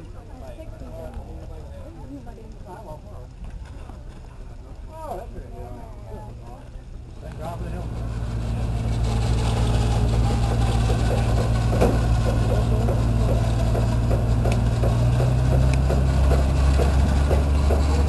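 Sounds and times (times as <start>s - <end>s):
vehicle engine idling: 4.9s - 18.0s.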